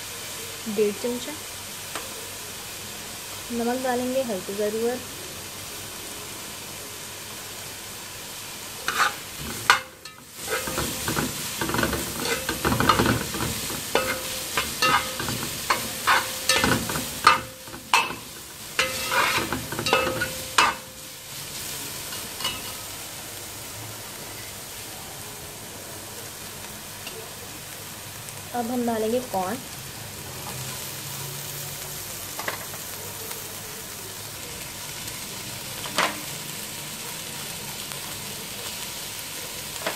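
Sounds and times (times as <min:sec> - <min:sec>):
vegetables sizzling in oil: 0:00.0 - 0:39.9
metal spoon scraping pot: 0:08.9 - 0:20.8.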